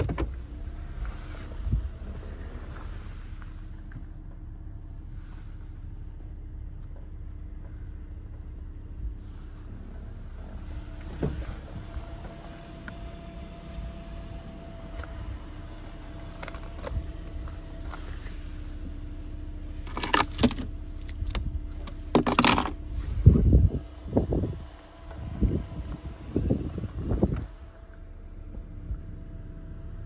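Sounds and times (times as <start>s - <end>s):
car cabin low rumble: 0.0s - 30.0s
low bumps: 0.0s - 30.0s
rattling clatter: 19.8s - 22.9s.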